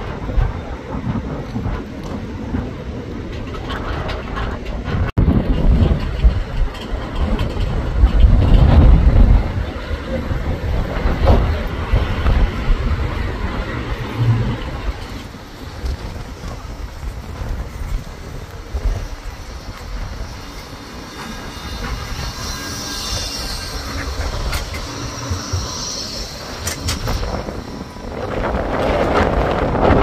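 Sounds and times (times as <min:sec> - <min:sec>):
rushing noise: 0:00.0 - 0:30.0
tram rumbling on rails: 0:00.0 - 0:30.0
high wheel squeal: 0:18.6 - 0:29.3.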